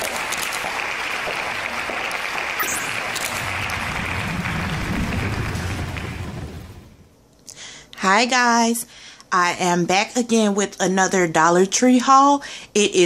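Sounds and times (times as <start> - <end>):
audience clapping: 0.0 - 7.1
deep low sound: 2.8 - 7.1.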